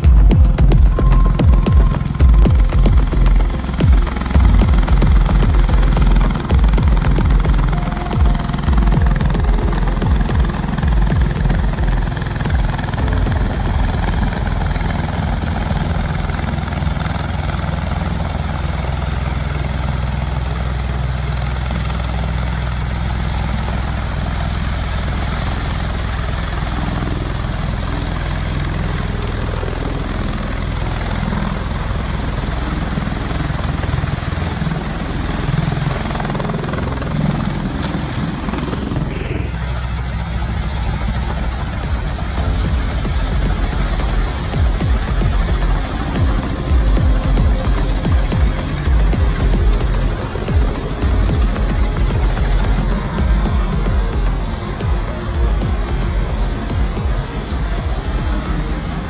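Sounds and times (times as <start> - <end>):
aircraft rotor and engine noise: 0.0 - 59.0
rapid low buffeting: 0.0 - 59.0.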